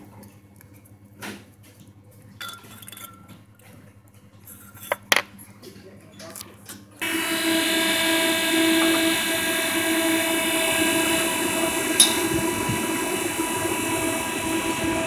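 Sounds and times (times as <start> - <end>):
refrigeration unit humming: 0.0 - 15.0
fan hiss: 7.0 - 15.0.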